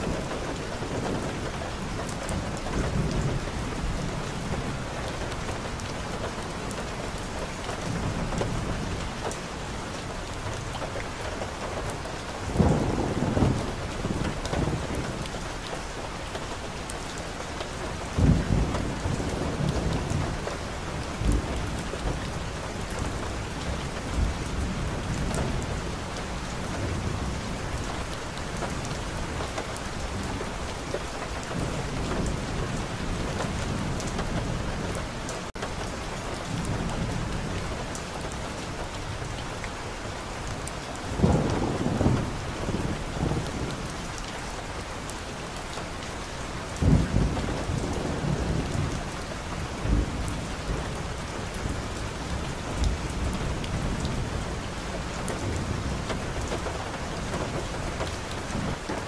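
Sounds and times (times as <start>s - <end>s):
rain on car windshield: 0.0s - 59.0s
loud thunderclaps: 12.4s - 15.4s, 18.1s - 29.4s, 41.0s - 44.0s, 46.7s - 49.1s
thunder rumbling: 12.4s - 15.5s, 41.0s - 44.8s, 46.2s - 59.0s.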